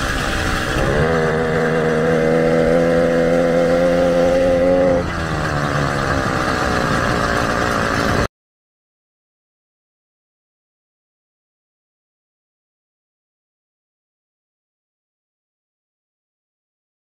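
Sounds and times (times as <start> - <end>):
two-stroke engine running: 0.0 - 8.3.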